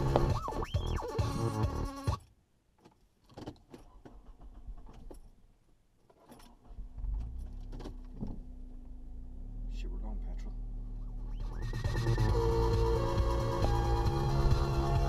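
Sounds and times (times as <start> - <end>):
car engine and tyres drone: 0.0 - 2.1, 6.8 - 15.0
background music: 0.0 - 2.2, 11.3 - 15.0.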